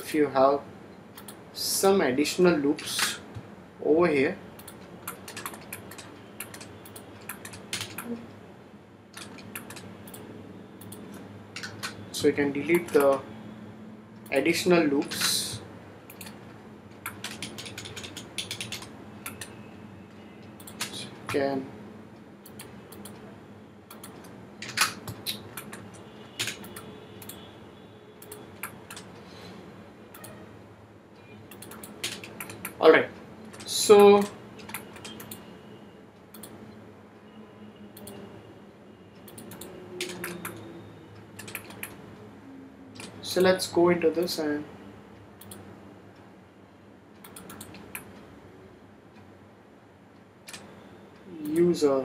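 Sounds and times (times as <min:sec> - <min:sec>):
computer mouse clicking: 0:01.2 - 0:01.4, 0:04.6 - 0:08.2, 0:09.1 - 0:12.0, 0:12.7 - 0:13.2, 0:16.1 - 0:19.6, 0:20.5 - 0:21.4, 0:22.4 - 0:23.3, 0:23.9 - 0:27.4, 0:28.2 - 0:29.1, 0:31.5 - 0:32.8, 0:33.4 - 0:35.5, 0:36.3 - 0:36.6, 0:38.0 - 0:38.2, 0:39.2 - 0:42.0, 0:43.0 - 0:43.5, 0:45.4 - 0:45.7, 0:47.2 - 0:48.2, 0:50.5 - 0:50.8
keyboard clicking: 0:04.6 - 0:08.2, 0:09.1 - 0:12.0, 0:17.0 - 0:19.5, 0:20.5 - 0:21.4, 0:23.9 - 0:27.4, 0:28.2 - 0:29.1, 0:31.5 - 0:32.8, 0:33.4 - 0:35.4, 0:39.2 - 0:40.6, 0:41.4 - 0:42.0, 0:43.0 - 0:43.5, 0:47.2 - 0:48.2.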